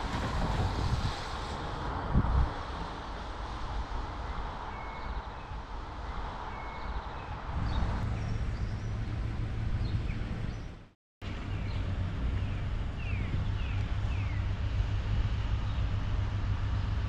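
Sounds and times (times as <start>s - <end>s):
wind on microphone: 0.0s - 10.8s, 11.7s - 17.0s
low engine hum: 0.0s - 17.0s
birds chirping: 4.2s - 14.6s.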